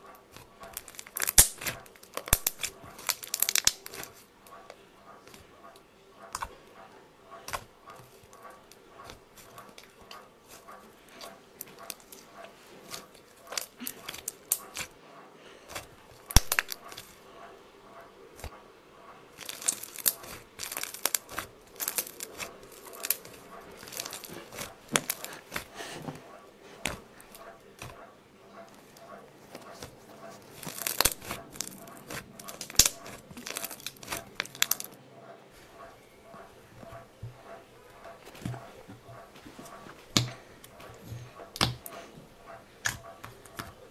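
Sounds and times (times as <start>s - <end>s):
slime crackling and popping: 0.3s - 4.2s, 12.9s - 14.9s, 15.7s - 17.2s, 19.4s - 25.7s, 29.5s - 35.0s, 41.5s - 41.9s, 42.8s - 43.8s
sticky clicks and pops: 0.8s - 4.2s, 15.7s - 17.1s, 30.6s - 35.0s.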